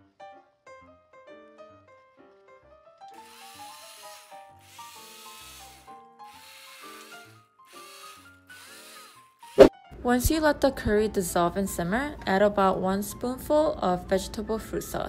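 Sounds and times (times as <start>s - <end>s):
quiet piano background music: 0.0s - 15.0s
utensil scraping thick curry in pot: 3.4s - 8.9s.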